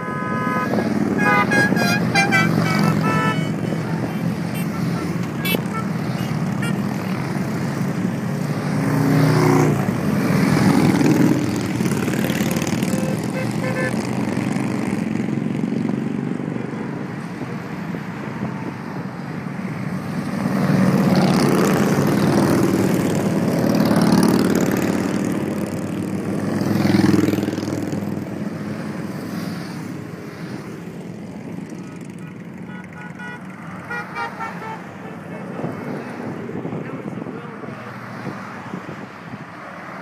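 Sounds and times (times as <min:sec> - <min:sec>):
short horn toots: 0:00.0 - 0:03.6
cars passing: 0:00.0 - 0:40.0
motorcycles passing: 0:00.0 - 0:40.0.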